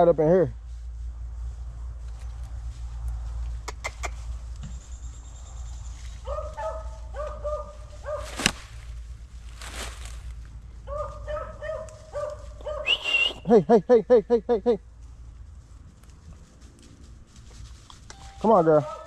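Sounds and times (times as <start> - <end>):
dog yelping: 6.2 - 8.4, 10.9 - 13.0, 18.7 - 19.0
sharp crack: 8.2 - 8.9.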